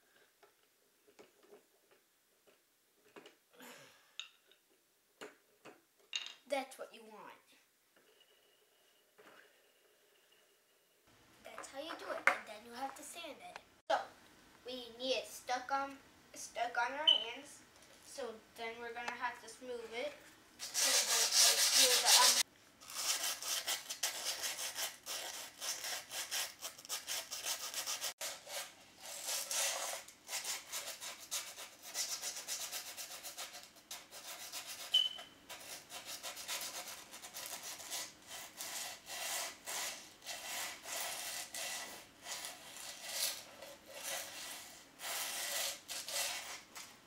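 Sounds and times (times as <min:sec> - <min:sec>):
scraping grip tape edge: 0:20.6 - 0:46.9.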